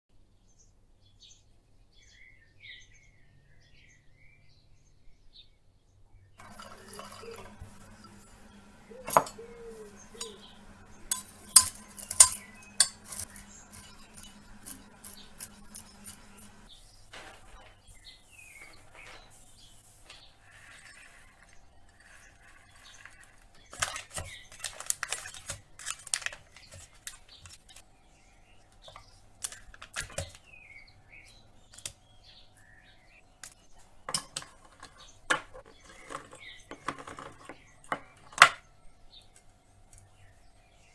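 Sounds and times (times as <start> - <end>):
faint bird chirps: 6.4 - 11.1.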